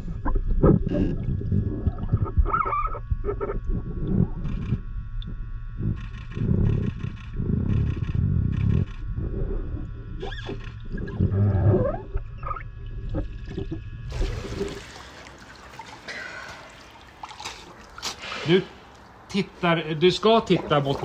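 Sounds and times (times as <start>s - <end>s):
underwater air bubbles rumbling: 0.0s - 15.3s
faint steady hum: 0.0s - 21.0s.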